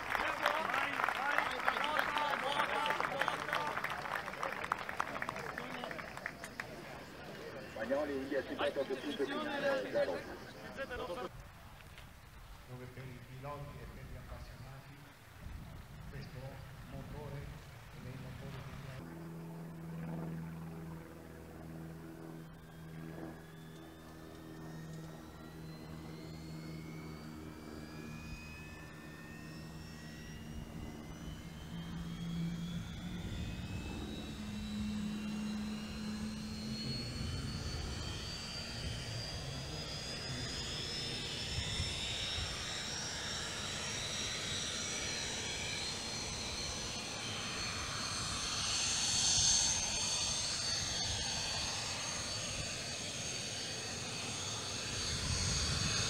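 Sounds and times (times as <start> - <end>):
turbojet engine whine rising: 0.0 - 56.0.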